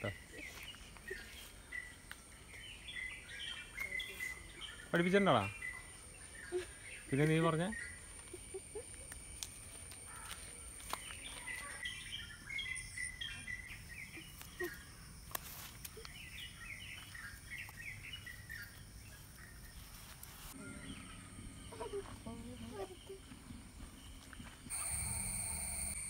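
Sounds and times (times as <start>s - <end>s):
birds twittering: 0.0s - 9.0s, 10.0s - 15.2s, 15.9s - 26.0s
high insect-like whine: 24.2s - 26.0s.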